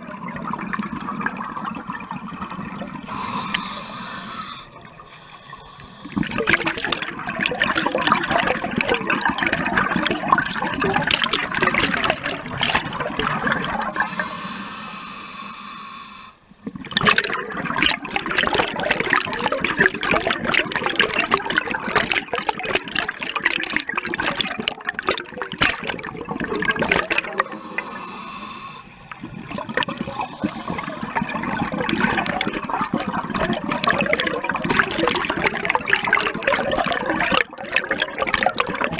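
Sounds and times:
underwater air bubbling: 0.0 - 38.9.

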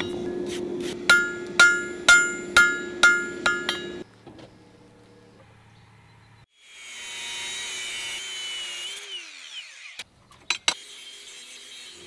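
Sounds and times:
angle grinder grinding steel: 6.6 - 12.0.

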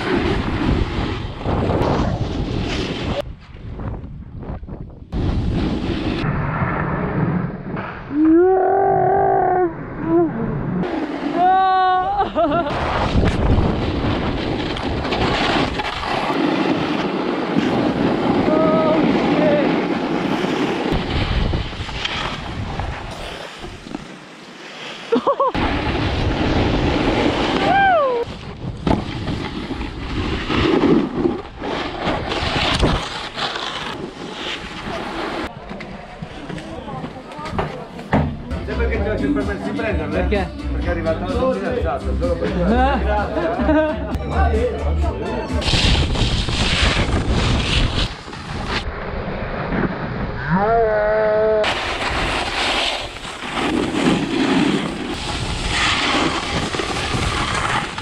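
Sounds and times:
snowboard scraping on snow: 0.0 - 3.5, 5.1 - 7.3, 10.8 - 11.7, 12.4 - 37.2, 45.6 - 50.2, 51.6 - 58.0
wind over microphone: 0.0 - 24.0, 45.6 - 52.5.

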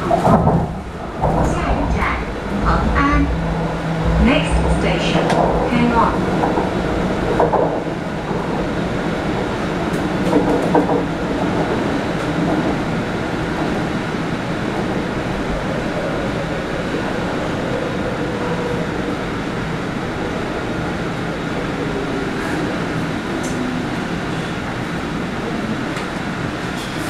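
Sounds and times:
faint train whine: 0.0 - 10.3
train wheels rumbling on rails: 0.0 - 27.0.

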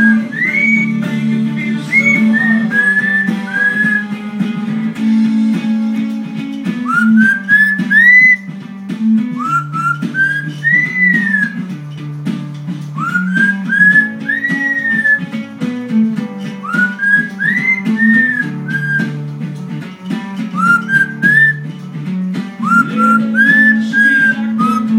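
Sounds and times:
parrot whistling: 0.0 - 4.2, 6.8 - 11.8, 12.9 - 15.4, 16.6 - 19.2, 20.5 - 21.7, 22.6 - 24.9
acoustic guitar song: 0.0 - 24.9.

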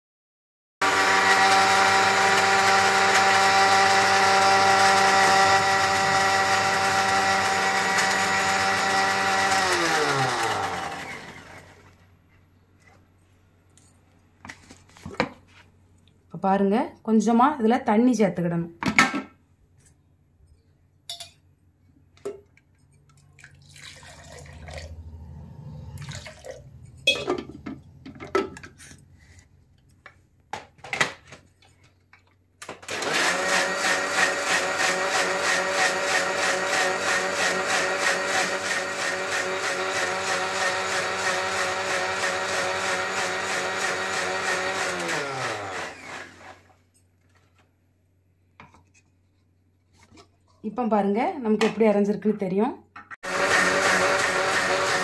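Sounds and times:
mixer grinder running: 0.8 - 11.9, 32.8 - 46.7, 53.2 - 55.0.

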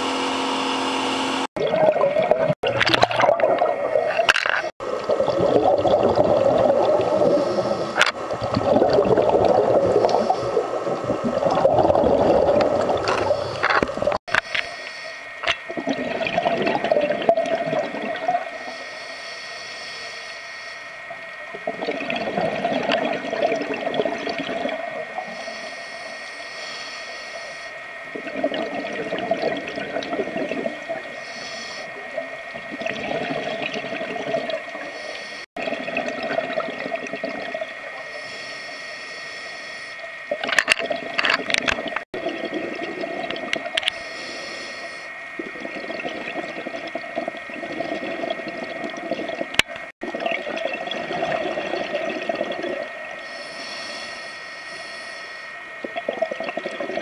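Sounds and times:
exhaust bubbles gurgling: 1.5 - 14.6, 15.4 - 18.8, 21.4 - 25.6, 28.1 - 38.2, 40.2 - 53.9, 55.8 - 57.0
crackles: 1.7 - 57.0
diver inhaling through regulator: 6.8 - 8.2, 9.6 - 10.8, 13.1 - 16.0, 18.4 - 21.0, 25.1 - 27.8, 29.8 - 32.2, 34.2 - 35.6, 37.9 - 40.1, 43.5 - 48.4, 51.8 - 57.0
thin steady tone: 13.1 - 57.0.

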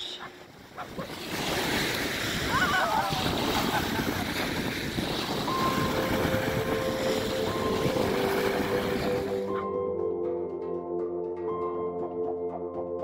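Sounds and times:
wind buffeting microphone: 0.4 - 9.4
waves washing onto pebbles: 0.4 - 9.5.

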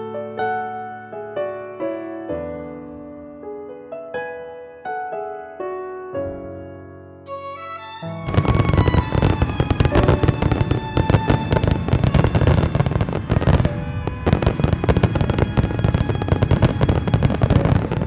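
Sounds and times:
music: 0.0 - 18.0
fireworks bangs and crackling: 8.2 - 18.0.

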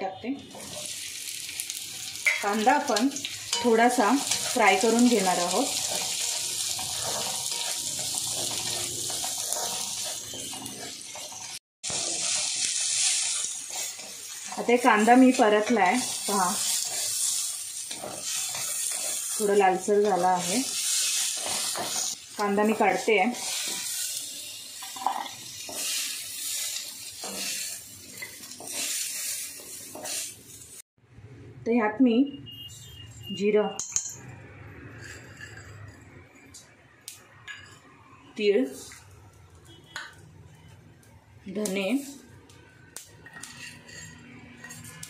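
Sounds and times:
onions sizzling in hot oil: 0.4 - 30.8, 41.4 - 45.0
spatula stirring in a pan: 1.7 - 30.7, 43.2 - 45.0
spatula scraping and knocking pan: 2.2 - 12.6, 43.2 - 45.0.

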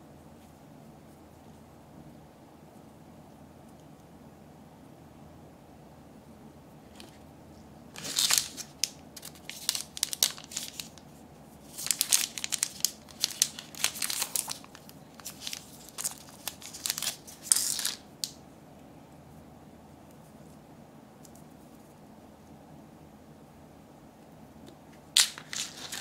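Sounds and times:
plastic wrapper crinkling: 7.9 - 11.0, 11.6 - 18.4, 25.2 - 26.0.

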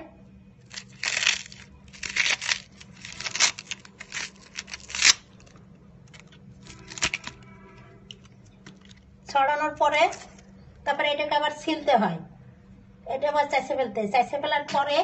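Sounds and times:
banana stem tearing by hand: 0.7 - 5.5, 6.1 - 7.4.

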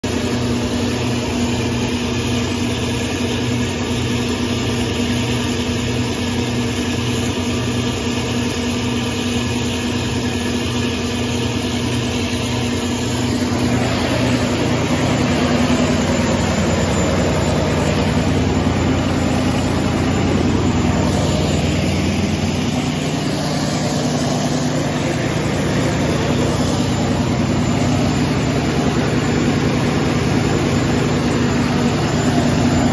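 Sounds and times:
diesel generator running: 0.0 - 32.9.

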